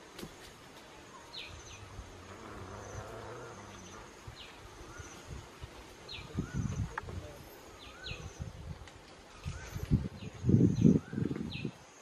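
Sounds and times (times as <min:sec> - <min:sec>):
insect buzzing: 0:01.3 - 0:05.4.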